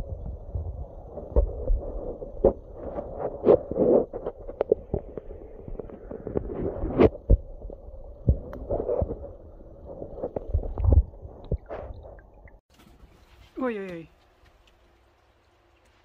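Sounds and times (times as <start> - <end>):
low underwater rumble: 0.0 - 12.6
muffled underwater thuds: 0.1 - 12.6.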